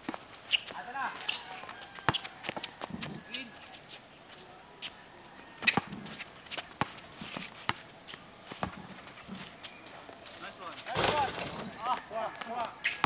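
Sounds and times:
basketball bouncing on concrete: 8.6s - 8.8s.

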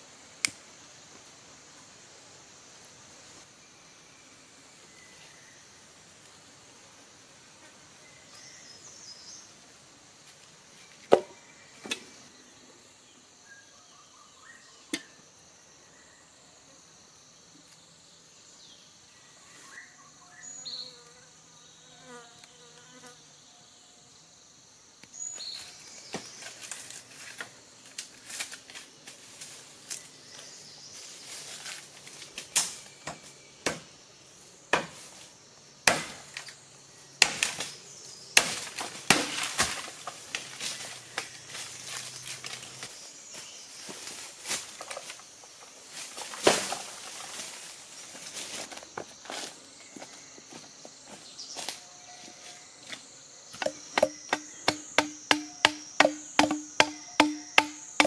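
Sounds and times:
forest insects chorus: 0.0s - 58.0s
machete chopping bamboo: 32.6s - 33.9s, 34.7s - 35.0s, 35.8s - 36.5s, 37.2s - 37.7s, 38.4s - 40.5s, 53.6s - 58.0s
rustling: 43.8s - 49.6s
firewood knocks: 53.6s - 58.0s.

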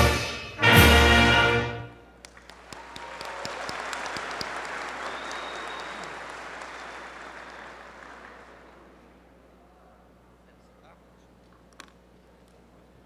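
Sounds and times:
crowd applauding: 2.2s - 9.2s.

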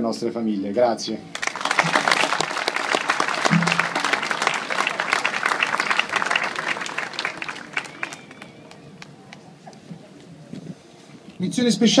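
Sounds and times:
crowd applauding: 1.3s - 9.2s.

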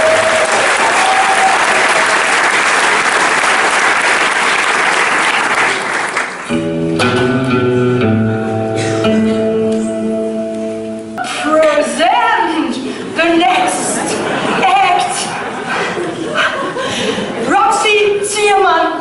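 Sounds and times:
audience applauding: 0.0s - 6.5s
guitar-like chords: 6.4s - 11.7s.

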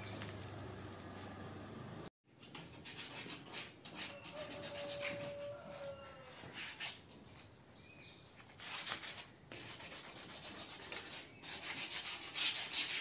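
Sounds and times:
rubbing scratching noise: 2.4s - 7.5s, 8.4s - 13.0s.

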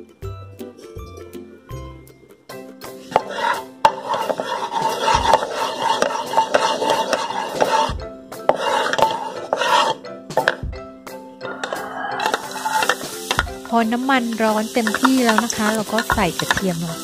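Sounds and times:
light background music: 0.0s - 17.0s
wooden spatula scraping wok: 2.9s - 10.6s, 11.5s - 17.0s.

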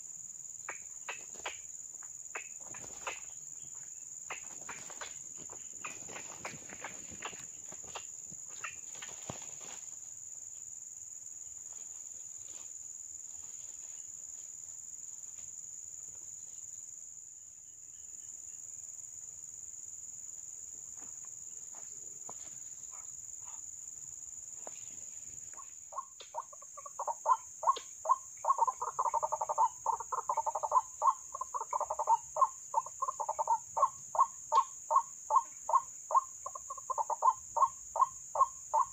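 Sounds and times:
cricket drone: 0.0s - 38.9s
rustling in dry leaves: 4.8s - 10.1s.

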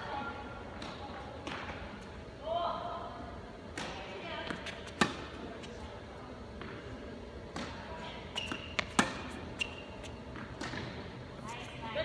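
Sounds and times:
tennis ball bouncing on court: 0.7s - 1.9s, 3.7s - 5.4s, 6.5s - 11.2s
racket hitting tennis ball: 3.7s - 5.4s, 7.5s - 11.1s.

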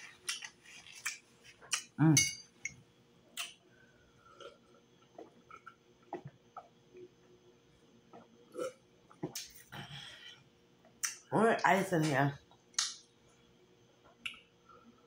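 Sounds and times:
soft gulps: 4.3s - 7.3s.

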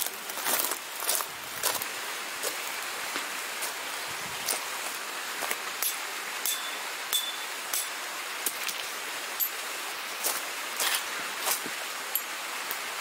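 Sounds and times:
footsteps crunching on gravel: 0.0s - 3.8s, 10.2s - 11.7s
steady background hiss: 0.0s - 13.0s.

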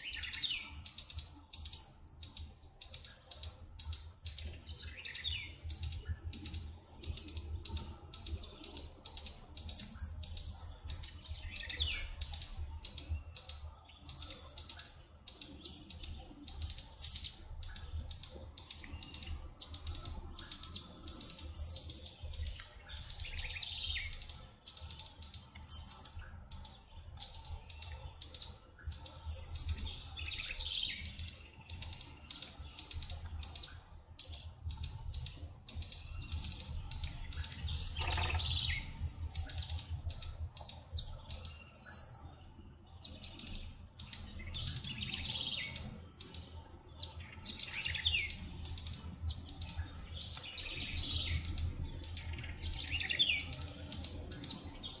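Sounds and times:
birds chirping and calling: 0.0s - 55.0s
whistled bird notes: 34.8s - 42.2s.

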